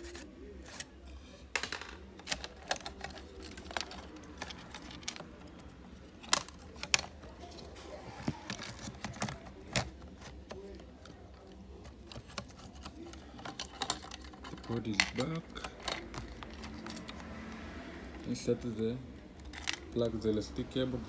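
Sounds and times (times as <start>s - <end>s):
laptop parts clicking when handled: 1.6s - 7.6s, 8.2s - 18.2s.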